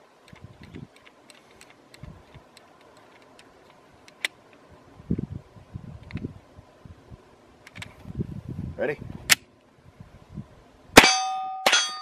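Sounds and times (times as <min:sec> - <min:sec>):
pistol slide racking: 0:00.2 - 0:04.6
light handling clicks: 0:00.2 - 0:04.7, 0:06.0 - 0:06.3, 0:07.6 - 0:08.0.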